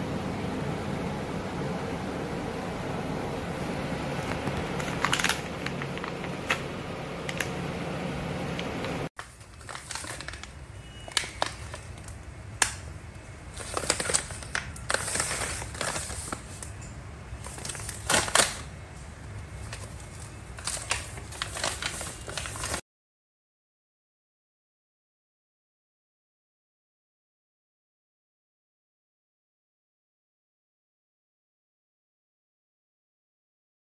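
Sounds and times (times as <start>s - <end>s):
steady background hum: 0.0s - 22.8s
plastic pouches crinkling: 4.1s - 7.6s, 9.2s - 22.8s.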